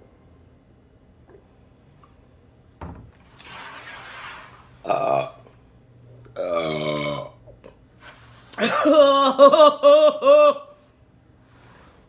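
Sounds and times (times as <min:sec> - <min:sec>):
woman burping: 0:04.8 - 0:05.5, 0:06.4 - 0:07.8.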